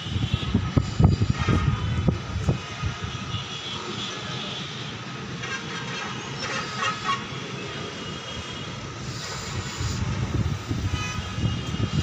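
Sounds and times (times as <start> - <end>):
gusty wind buffeting microphone: 0.0 - 3.3, 8.7 - 12.0.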